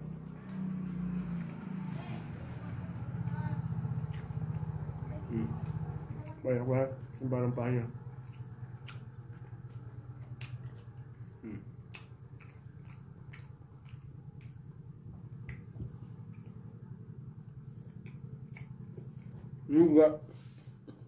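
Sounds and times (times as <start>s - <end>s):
chewing: 0.0s - 19.7s
steady low hum: 0.0s - 21.0s
wet clicks and smacks: 8.0s - 16.6s.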